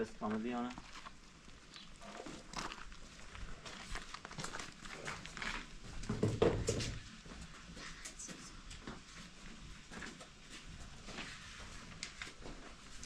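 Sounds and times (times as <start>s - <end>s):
rustling: 0.2s - 6.1s.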